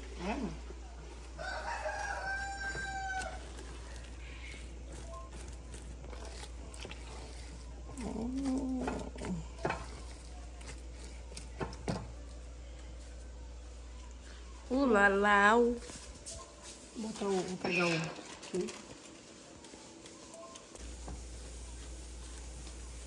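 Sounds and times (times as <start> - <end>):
rooster crowing: 1.3 - 4.6.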